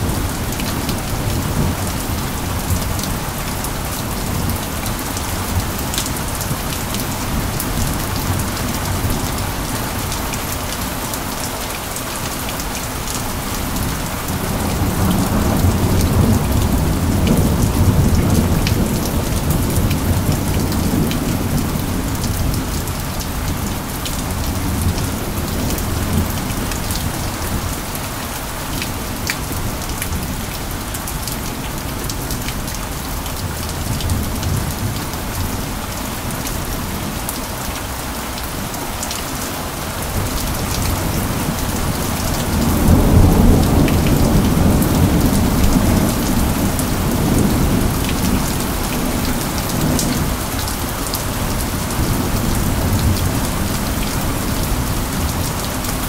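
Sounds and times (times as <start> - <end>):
steady rain: 0.0 - 56.0
low rumble of thunder: 13.8 - 27.8, 40.1 - 55.6.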